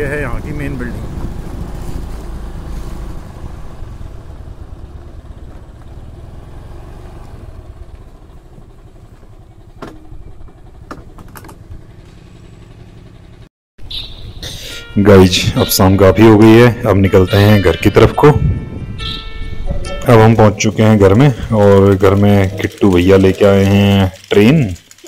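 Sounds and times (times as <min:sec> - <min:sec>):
motorcycle engine rumbling: 0:00.0 - 0:25.0
sharp clicks: 0:21.4 - 0:25.0.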